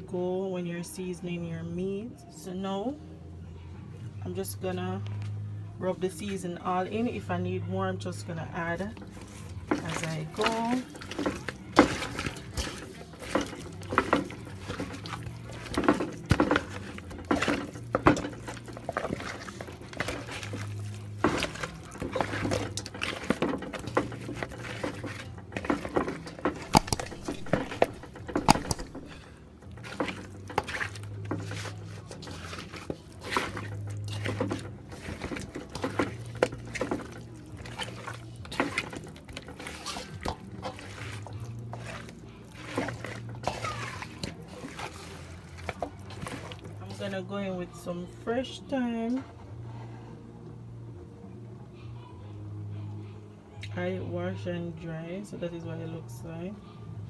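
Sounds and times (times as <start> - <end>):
hands rubbing raw meat: 9.0 - 47.2.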